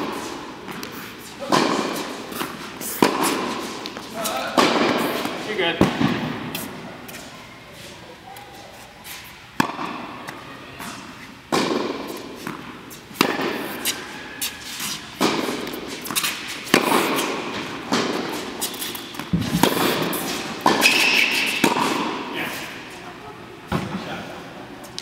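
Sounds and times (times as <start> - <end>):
tennis ball hit by rackets: 0.0 - 6.8, 9.6 - 22.3.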